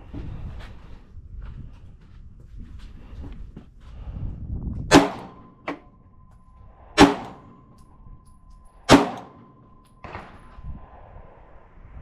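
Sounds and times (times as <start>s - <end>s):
loud gunshots: 4.9s - 5.4s, 7.0s - 7.6s, 8.9s - 10.3s.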